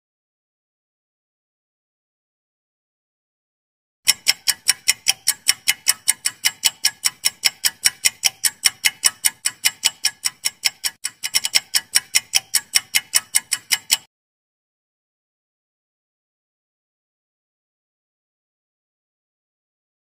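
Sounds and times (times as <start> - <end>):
rapid clock ticks: 4.0 - 14.1.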